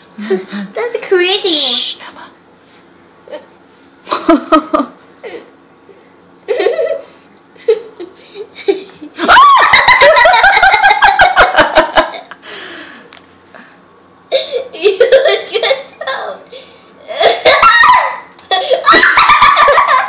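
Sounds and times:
people laughing: 7.6 - 12.4, 18.6 - 20.0.

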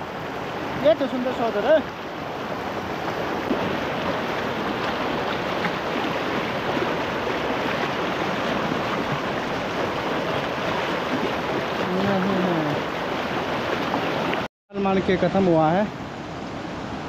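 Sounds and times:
river rushing over rocks: 0.0 - 17.0
faint splashes: 0.5 - 14.5.

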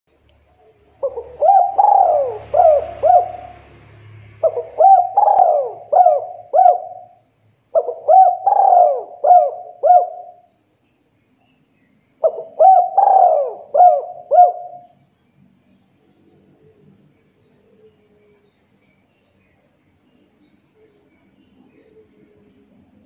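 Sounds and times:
dove cooing: 0.8 - 10.5, 12.2 - 15.0.

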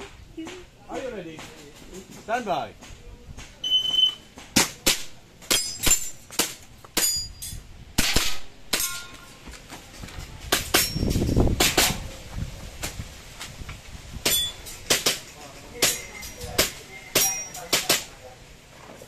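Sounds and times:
pistol shots: 8.0 - 8.9.

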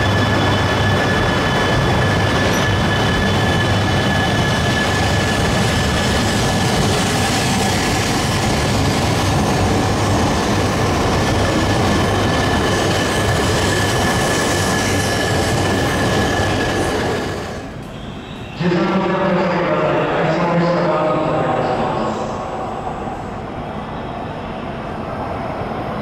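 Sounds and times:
train wheels rumbling on rails: 0.0 - 18.6.

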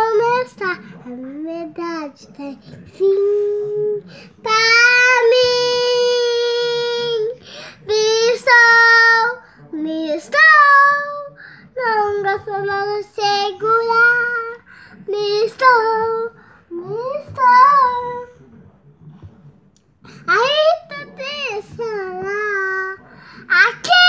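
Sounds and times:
girl singing unaccompanied: 0.0 - 18.3, 20.3 - 24.0
breaths between phrases: 23.1 - 23.5.

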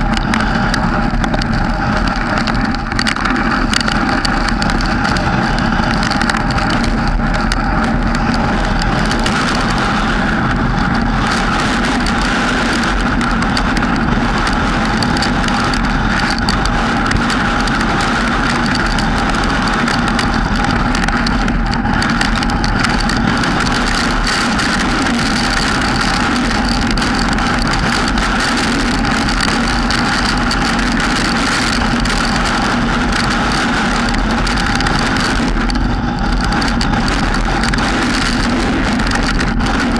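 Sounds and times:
car driving on wet road: 0.0 - 39.9.

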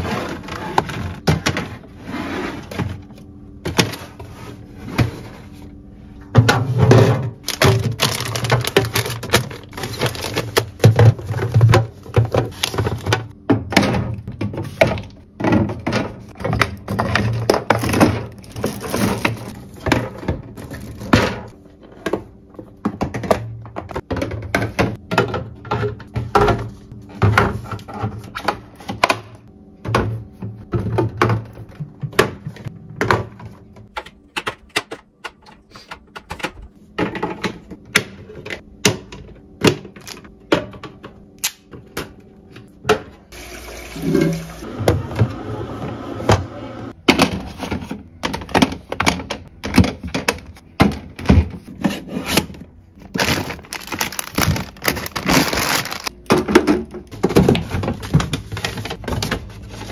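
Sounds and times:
glass bottles clacking on plastic: 53.2 - 59.3.

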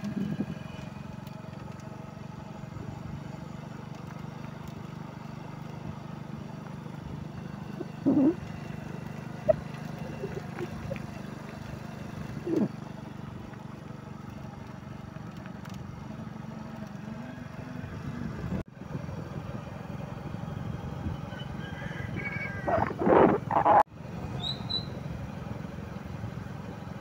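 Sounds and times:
low outdoor rumble: 0.0 - 27.0
animal calls: 7.6 - 11.2, 12.3 - 12.8, 21.3 - 23.8.

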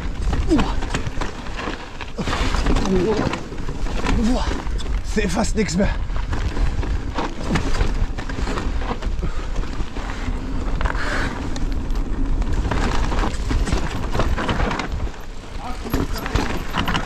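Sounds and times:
bike knocks and rattles: 0.0 - 5.2, 6.1 - 17.0
wind rumbling on microphone: 0.0 - 17.0
tyres rushing on gravel: 11.0 - 17.0.

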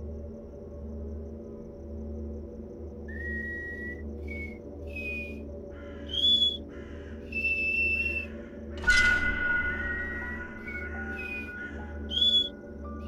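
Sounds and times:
low steady drone: 0.0 - 13.0
whistled notes: 3.1 - 5.4, 6.1 - 6.6, 7.4 - 13.0
sudden loud hit: 8.8 - 11.9.

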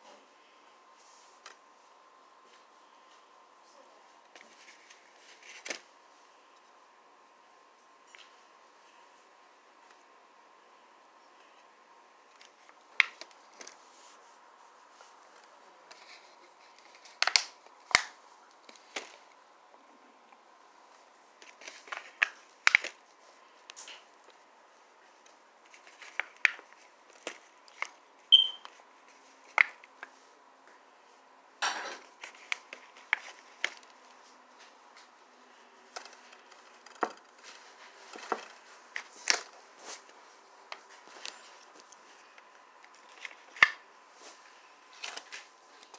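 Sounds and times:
hands handling food and packaging: 4.2 - 6.6, 11.4 - 19.4, 20.8 - 30.2, 32.0 - 35.2, 35.9 - 45.9.

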